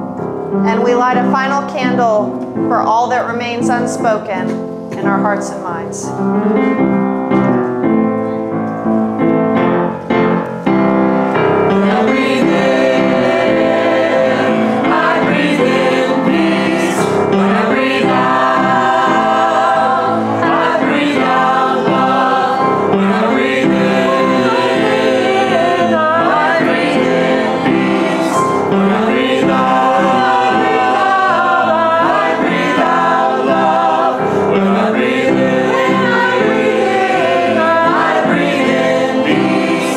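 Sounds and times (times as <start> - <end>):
piano accompaniment: 0.0 - 39.9
choir singing: 11.7 - 39.9.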